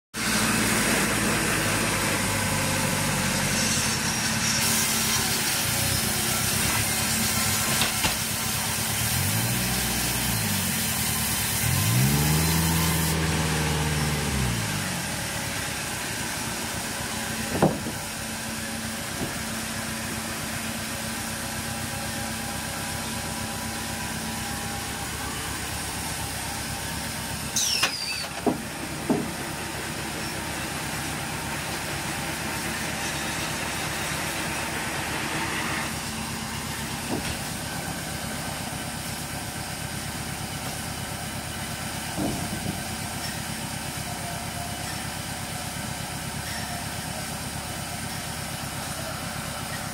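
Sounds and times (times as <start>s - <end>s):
engine idling: 0.2s - 49.9s
logs knocking against steel deck: 17.5s - 18.0s, 28.4s - 29.4s.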